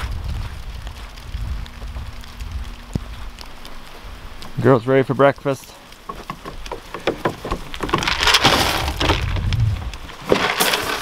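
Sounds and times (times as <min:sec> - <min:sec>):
hay crackling and rustling: 0:00.0 - 0:06.4, 0:07.6 - 0:11.0
knocks on wooden rails: 0:06.0 - 0:09.4.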